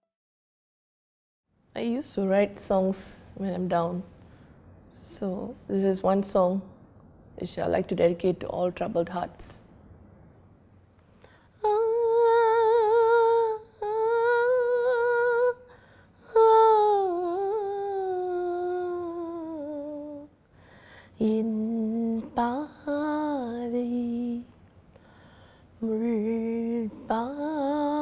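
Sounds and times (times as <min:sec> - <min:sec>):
woman singing unaccompanied: 0:11.6 - 0:20.3, 0:21.2 - 0:24.6, 0:25.8 - 0:28.0.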